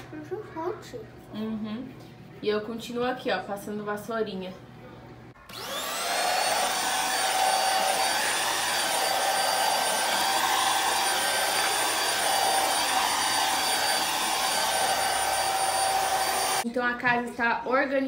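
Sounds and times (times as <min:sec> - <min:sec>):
vacuum cleaner motor whining: 0:05.4 - 0:16.6.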